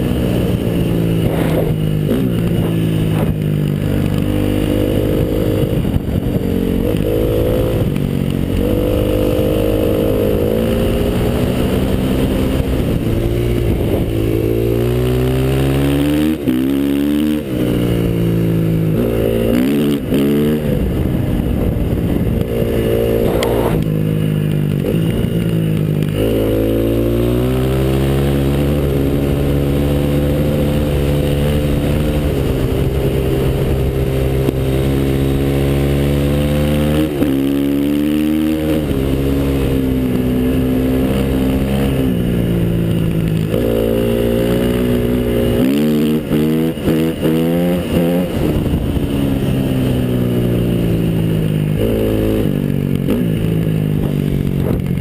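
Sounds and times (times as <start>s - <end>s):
small engine revving: 0.0s - 24.2s.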